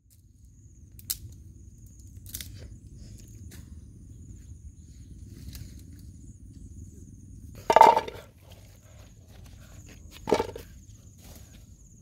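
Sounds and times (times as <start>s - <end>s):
vegetables knocking on metal pot: 7.7s - 8.2s, 10.3s - 10.6s.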